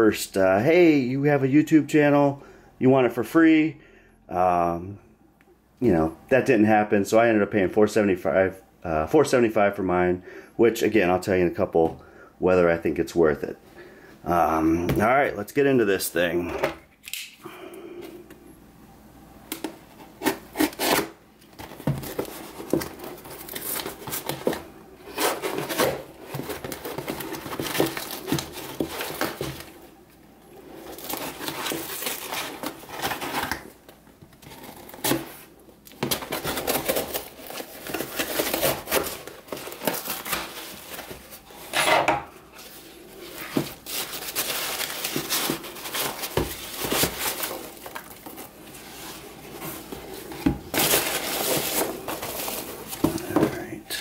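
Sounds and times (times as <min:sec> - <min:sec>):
cardboard scraping and rubbing: 0:20.0 - 0:29.7.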